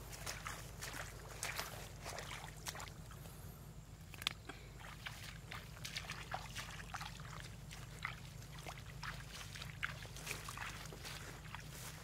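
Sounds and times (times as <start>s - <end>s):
footsteps through wet grass: 0.0s - 3.4s, 4.0s - 12.0s
steady low hum: 0.0s - 12.0s
leaves brushing against legs: 7.5s - 12.0s.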